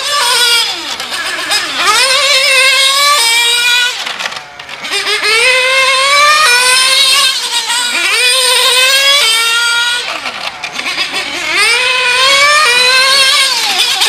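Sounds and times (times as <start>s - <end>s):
rc car engine buzzing: 0.0s - 14.0s.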